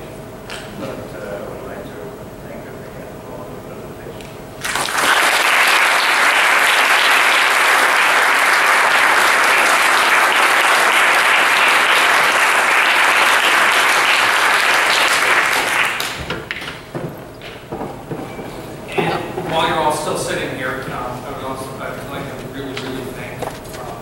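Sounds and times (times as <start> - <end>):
audience applause: 4.6 - 17.0.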